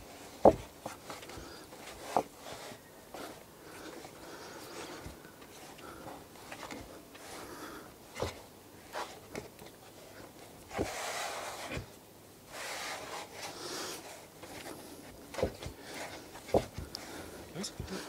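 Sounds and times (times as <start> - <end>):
dough thumping on wooden board: 0.4 - 0.6
hands scraping dough on board: 10.7 - 11.9.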